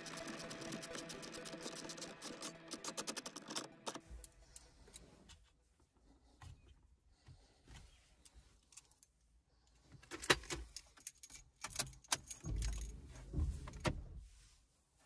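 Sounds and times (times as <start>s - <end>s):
keys jangling: 10.0s - 13.0s.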